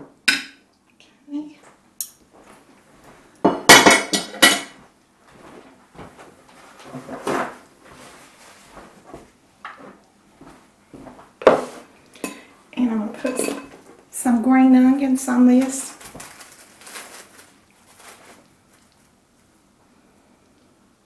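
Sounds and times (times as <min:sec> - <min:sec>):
plates and utensils clattering: 0:03.5 - 0:04.8, 0:13.2 - 0:13.8.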